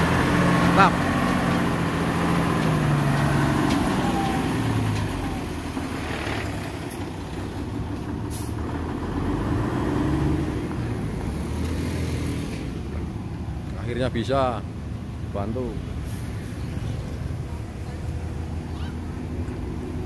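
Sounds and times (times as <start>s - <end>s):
diesel truck engine running: 0.0s - 20.0s.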